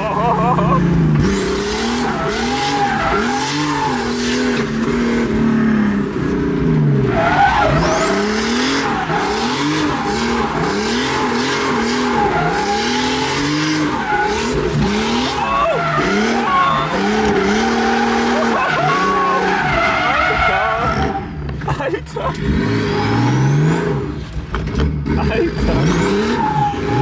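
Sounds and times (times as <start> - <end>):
car engine revving: 0.0 - 27.0
tyres squealing: 1.7 - 4.6, 7.1 - 21.4.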